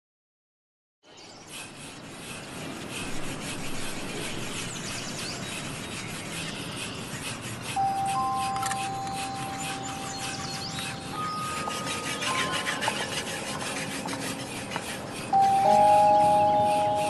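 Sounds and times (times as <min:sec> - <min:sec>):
hand rubbing horse coat: 0:07.2 - 0:17.0
steady high tones: 0:07.7 - 0:17.0.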